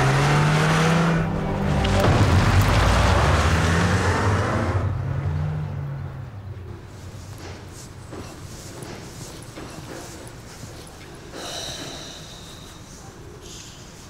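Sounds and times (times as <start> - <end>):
car engine revving: 0.0 - 6.7.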